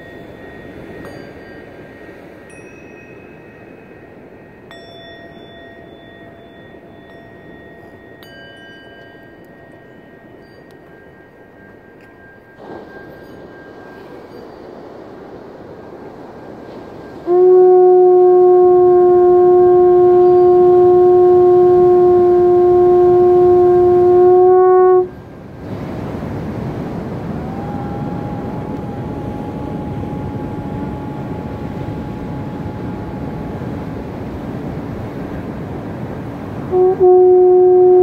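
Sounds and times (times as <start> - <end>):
ocean surf: 0.0 - 38.0
horn blown by mouth: 17.2 - 25.2, 27.0 - 34.8, 36.6 - 38.0.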